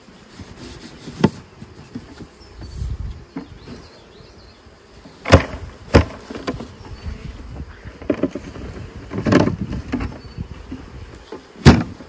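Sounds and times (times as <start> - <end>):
faint bees humming: 0.0 - 12.0.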